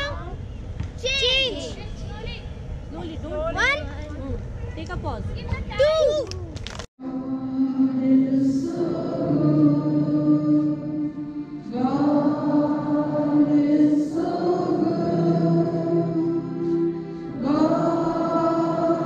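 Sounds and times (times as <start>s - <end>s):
students singing together: 7.0s - 19.0s.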